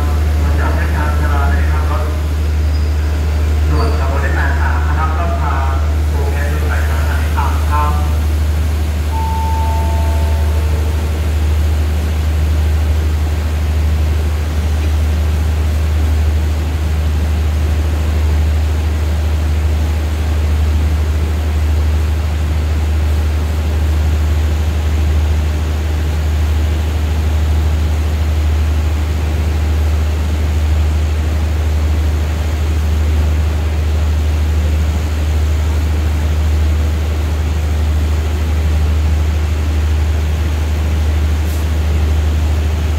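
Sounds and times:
train diesel engine idling: 0.0 - 42.9.

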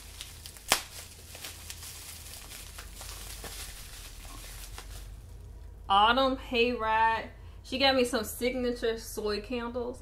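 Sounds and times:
paper rustling and crinkling: 0.0 - 5.3.

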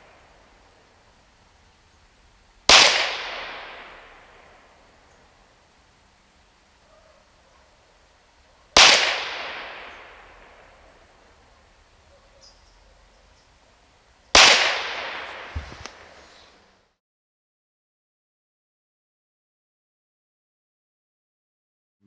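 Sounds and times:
air pistol shots: 2.7 - 4.6, 8.8 - 10.6, 14.3 - 16.2.

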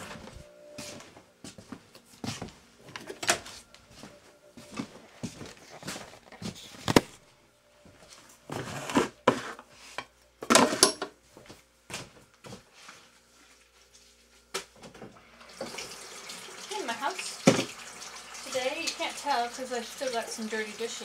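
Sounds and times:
dishes and cans knocking on counter: 17.4 - 17.7.

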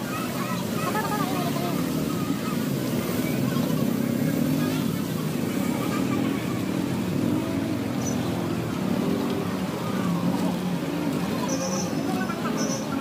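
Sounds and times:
steady background noise: 0.0 - 13.0
vehicle engines in traffic: 0.0 - 13.0.

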